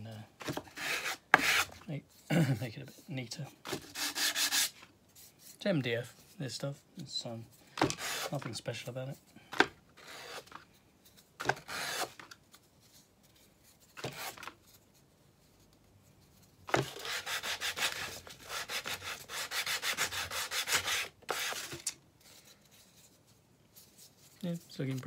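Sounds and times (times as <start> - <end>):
hand sanding with sandpaper: 3.8 - 5.3, 16.8 - 21.8.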